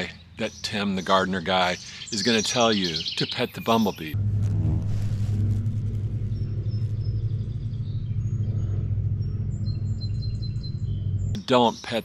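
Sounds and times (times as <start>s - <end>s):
bumblebee buzzing: 4.2s - 11.4s.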